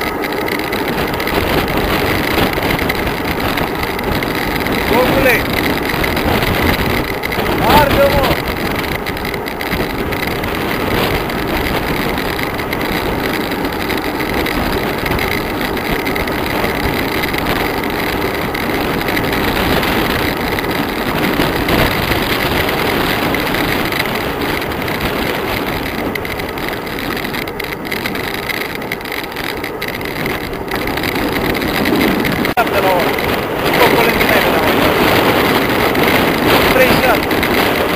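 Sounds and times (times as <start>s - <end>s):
road noise: 0.0s - 37.9s
rushing wind on microphone: 0.0s - 37.9s.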